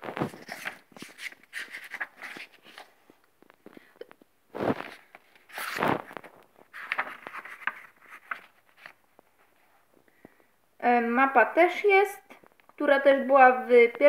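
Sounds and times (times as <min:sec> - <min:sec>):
book pages turning: 0:00.0 - 0:03.8, 0:04.5 - 0:09.8.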